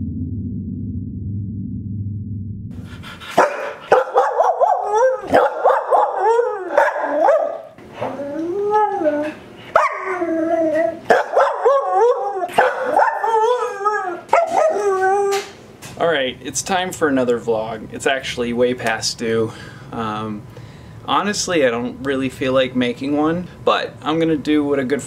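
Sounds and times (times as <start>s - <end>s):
low humming drone: 0.0s - 3.4s
dog howling and barking: 3.4s - 15.5s.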